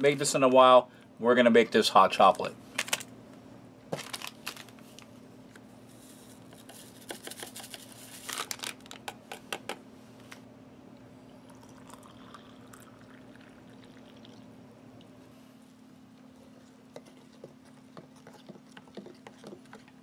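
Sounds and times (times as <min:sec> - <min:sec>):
powder crinkling into mug: 0:04.0 - 0:04.8, 0:06.6 - 0:09.1
water pouring into mug: 0:11.3 - 0:14.6.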